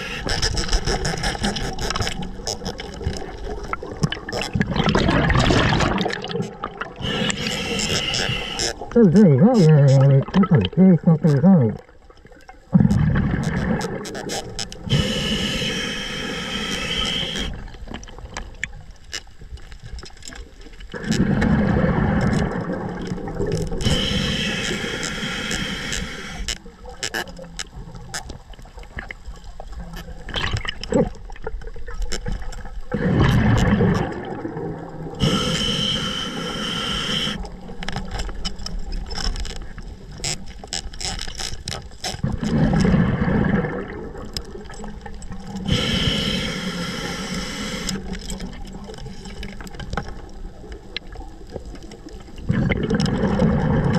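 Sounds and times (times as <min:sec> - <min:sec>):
small clicks and scrapes: 0:00.0 - 0:05.0, 0:05.6 - 0:10.0, 0:12.2 - 0:34.2, 0:37.0 - 0:43.0, 0:44.2 - 0:53.9
exhaled bubbles rumbling: 0:00.0 - 0:15.6, 0:20.9 - 0:24.9, 0:26.6 - 0:35.6, 0:42.2 - 0:46.3, 0:48.0 - 0:53.9
regulator hissing inhalations: 0:07.0 - 0:08.8, 0:14.8 - 0:17.6, 0:23.8 - 0:26.5, 0:35.2 - 0:37.4, 0:45.7 - 0:48.0.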